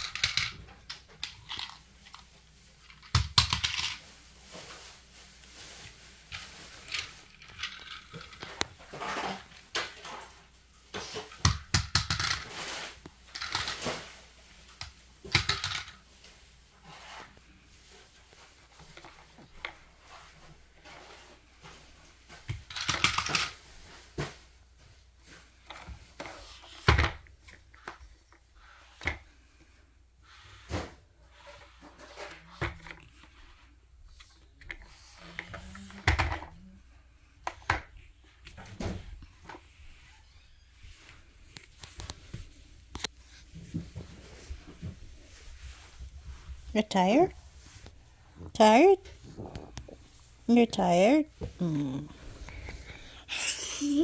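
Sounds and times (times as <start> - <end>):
toys knocking and rattling: 0.0 - 2.2, 2.8 - 4.0, 6.8 - 10.3, 11.0 - 12.7, 13.3 - 14.0, 14.8 - 16.0, 22.5 - 23.6, 35.4 - 36.6.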